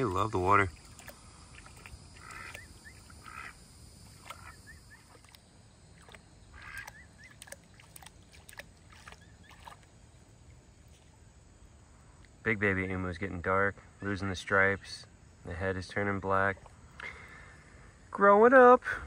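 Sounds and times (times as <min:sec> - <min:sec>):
water splashing faintly: 0:00.0 - 0:12.4, 0:15.9 - 0:17.7.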